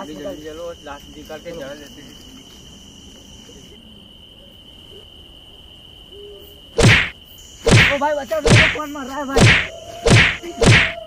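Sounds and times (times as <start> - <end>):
night insects trilling: 0.0 - 11.0
loud sudden hits: 6.8 - 7.1, 7.7 - 8.8, 9.4 - 11.0.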